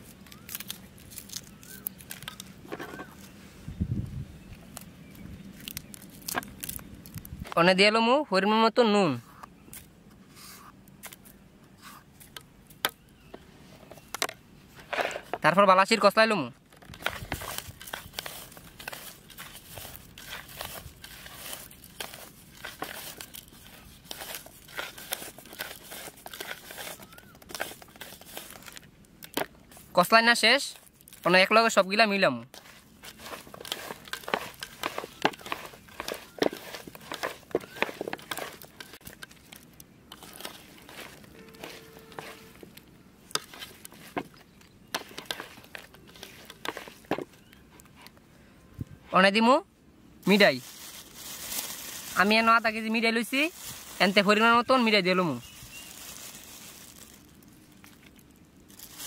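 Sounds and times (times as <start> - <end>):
dried chillies crackling and crunching: 0.0 - 3.3, 4.5 - 7.6, 14.8 - 48.2, 50.2 - 59.0
hand tossing food in bowl: 32.5 - 42.8.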